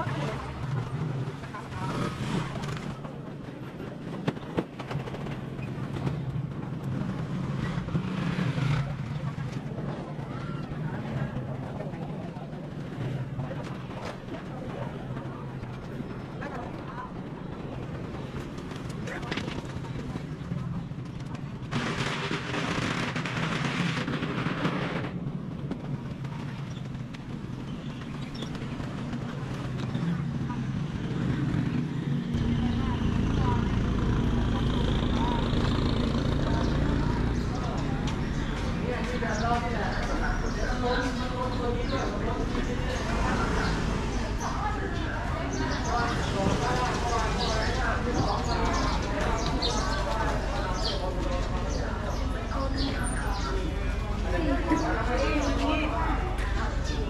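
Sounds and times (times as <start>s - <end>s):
vehicle engine running: 26.2s - 53.8s.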